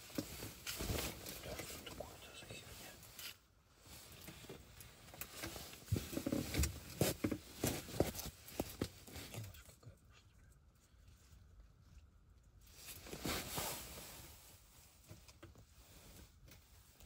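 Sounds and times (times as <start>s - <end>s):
soft irregular knocks and scuffs: 0.0s - 9.6s.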